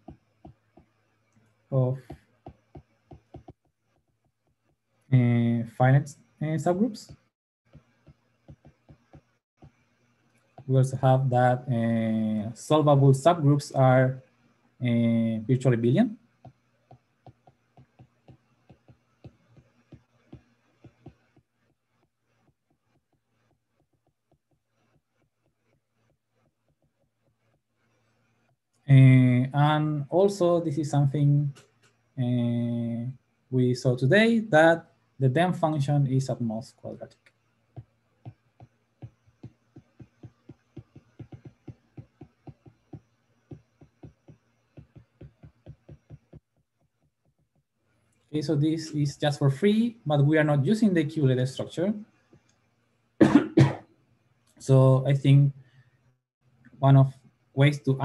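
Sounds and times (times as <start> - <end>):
stylus tapping on tablet screen: 0.0 - 1.0, 2.0 - 4.9, 7.1 - 9.8, 16.4 - 27.6, 37.8 - 47.7.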